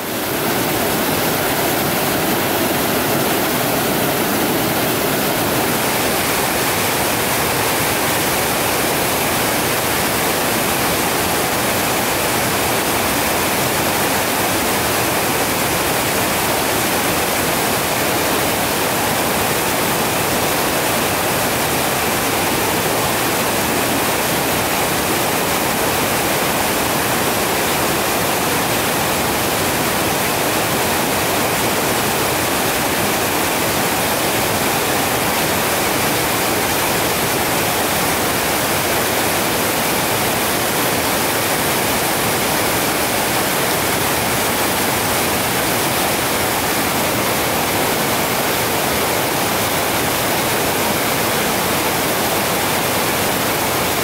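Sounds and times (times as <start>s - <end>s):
waterfall roaring: 0.0s - 54.0s.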